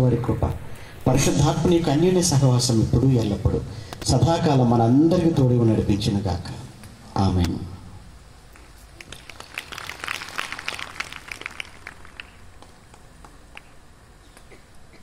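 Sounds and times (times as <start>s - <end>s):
small crowd clapping: 8.6s - 13.8s.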